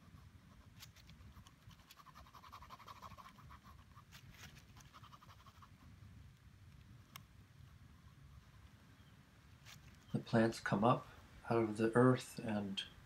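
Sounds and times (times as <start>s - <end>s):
pen scratching on paper: 0.0s - 5.9s.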